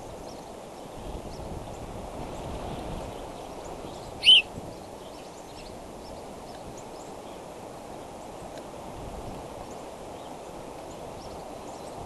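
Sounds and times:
rushing background hiss: 0.0 - 12.0
eagle call: 4.2 - 4.5
faint high chirps: 4.2 - 4.5.

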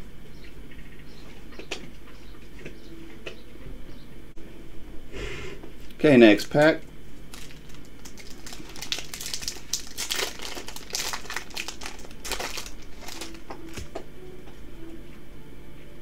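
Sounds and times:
foil wrapper crinkling and tearing: 7.3 - 14.0.

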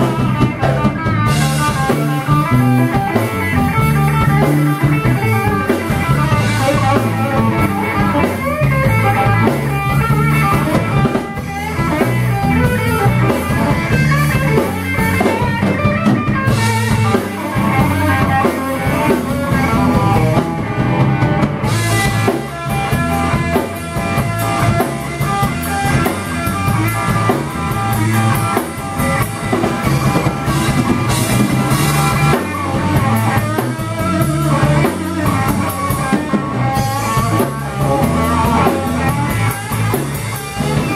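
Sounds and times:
drum kit: 0.0 - 40.9
electric guitar: 0.0 - 40.9.

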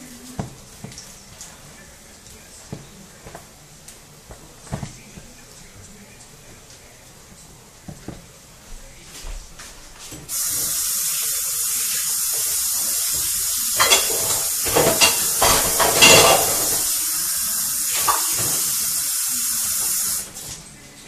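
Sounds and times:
oil spattering crackles: 0.0 - 8.8, 9.6 - 21.0
hot oil sizzling in a frying pan: 10.3 - 20.4.

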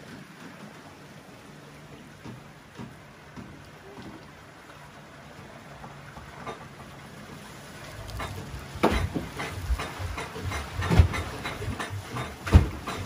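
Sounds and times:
irregular knocks and thumps: 1.9 - 4.2, 8.0 - 13.0.

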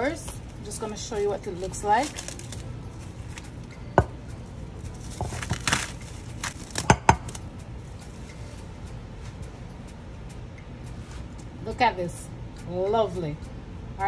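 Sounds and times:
cling wrap crinkling: 1.7 - 3.6, 4.9 - 7.4.

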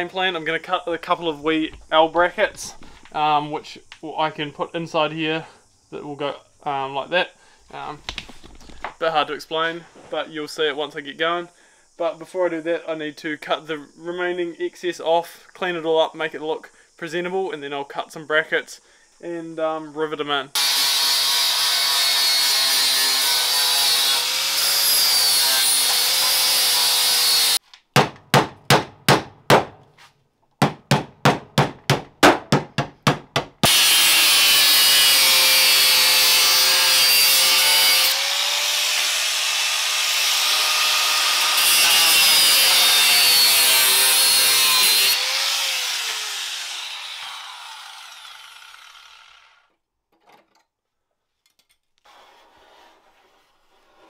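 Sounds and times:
angle grinder cutting sheet metal: 20.6 - 27.6, 33.6 - 49.6.

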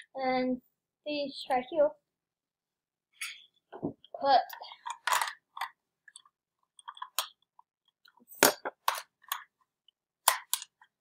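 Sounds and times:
plastic toy pieces clicking: 4.8 - 7.6, 10.2 - 11.0.

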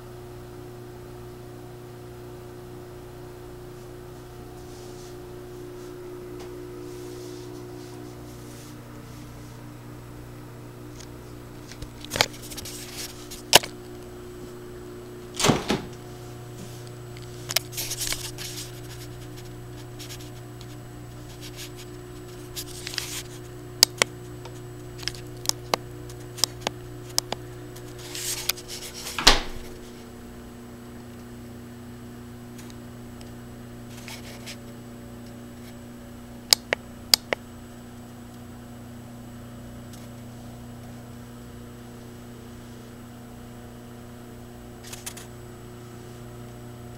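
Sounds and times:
appliance humming: 0.0 - 46.9
clicks and knocks of handling: 11.0 - 14.0
refrigerator door thump: 15.3 - 16.0, 29.1 - 29.8.

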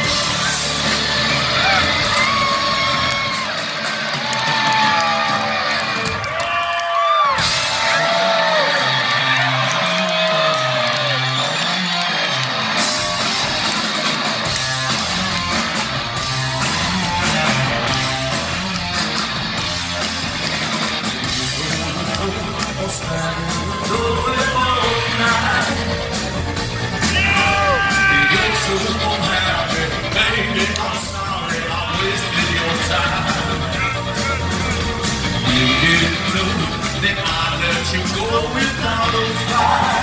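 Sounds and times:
hard rock band playing: 0.0 - 40.0
repeating bass line: 11.0 - 40.0
man singing: 21.2 - 26.0, 27.0 - 34.0, 35.4 - 40.0.

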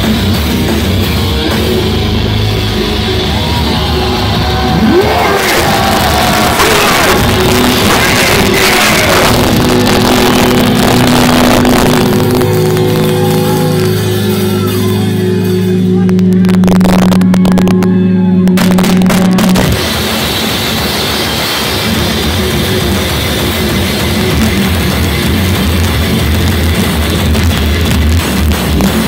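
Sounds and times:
crowd cheering and shouting: 0.0 - 29.0
heavy metal band playing live: 0.0 - 29.0.

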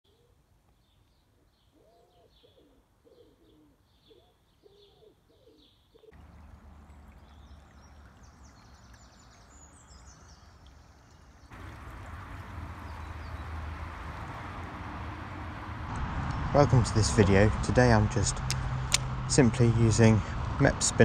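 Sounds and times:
small birds chirping: 0.1 - 15.9
pigeon cooing: 1.7 - 6.2
river water rushing: 6.2 - 10.6, 11.4 - 17.3.

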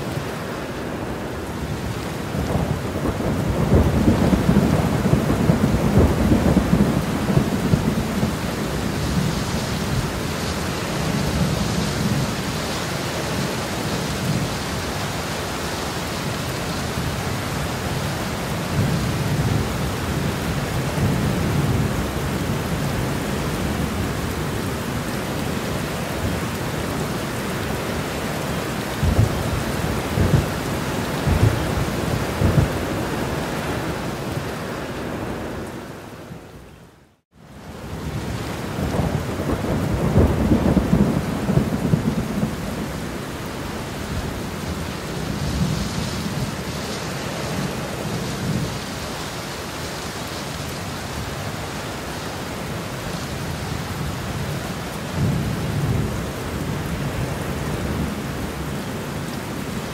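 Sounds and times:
steady rain: 0.0 - 59.9
thunder rumbling: 1.0 - 15.3, 16.1 - 36.4, 37.8 - 49.0.

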